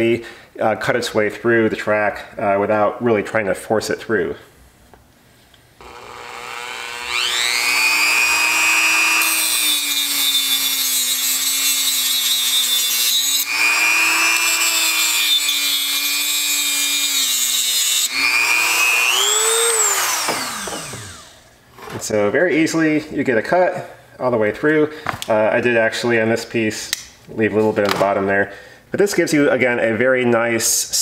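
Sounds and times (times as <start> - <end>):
cutoff disc grinding metal: 5.8 - 21.9
rotary tool whining: 5.8 - 21.9.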